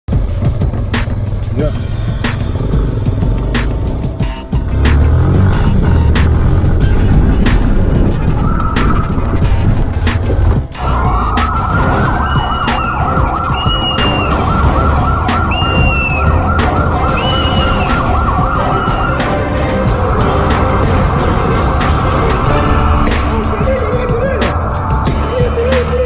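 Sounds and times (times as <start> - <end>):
police siren yelping: 8.1 - 9.6, 10.8 - 23.1.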